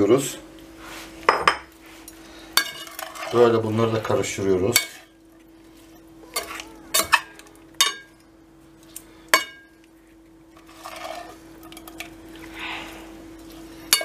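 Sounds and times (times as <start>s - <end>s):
steady low hum: 0.0s - 14.0s
spatula scraping and stirring: 0.7s - 8.2s, 8.8s - 14.0s.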